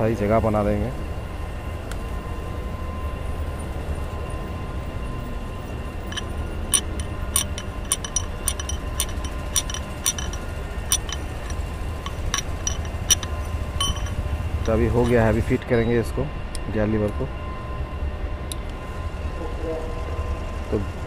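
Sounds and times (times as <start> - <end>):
low steady rumble: 6.1 - 15.6
metal rod clinking: 6.1 - 15.6.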